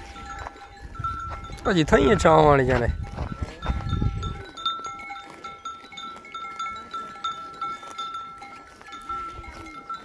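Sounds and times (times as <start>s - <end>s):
livestock bells tinkling: 0.0s - 10.0s.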